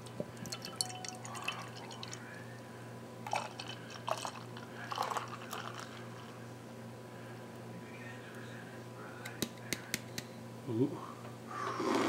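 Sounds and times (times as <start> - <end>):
faint steady hum: 0.0 - 12.0
beer crackling in glass: 0.3 - 2.3.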